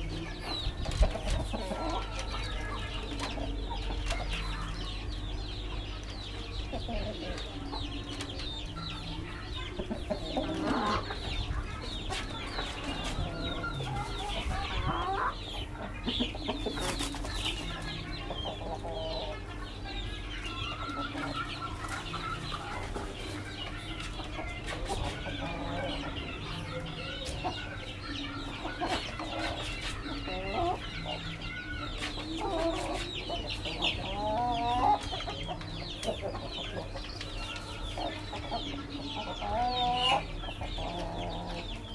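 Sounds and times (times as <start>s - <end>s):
chickens clucking: 0.0s - 41.9s.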